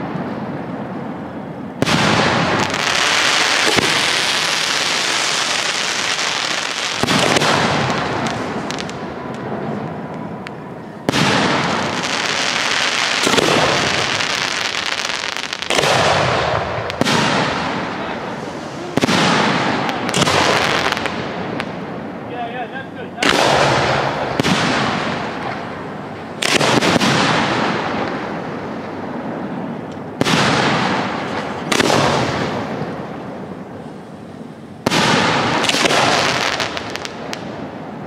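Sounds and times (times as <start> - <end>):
firework shells booming with echo: 1.8 - 22.3, 23.2 - 38.0.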